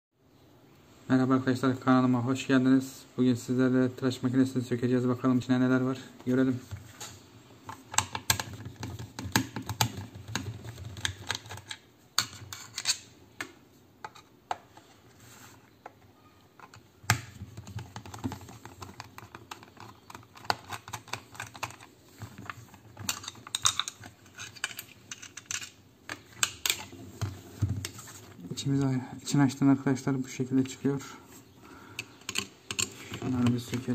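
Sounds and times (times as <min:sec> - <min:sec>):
plastic case handled: 0:15.7 - 0:28.4.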